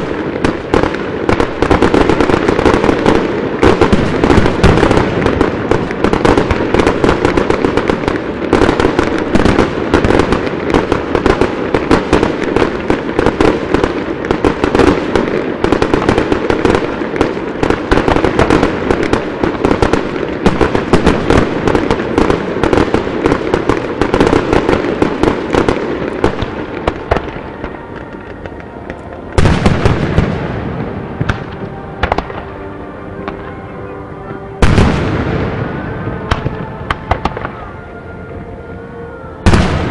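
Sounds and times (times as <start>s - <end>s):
fireworks bangs and crackling: 0.0s - 39.9s.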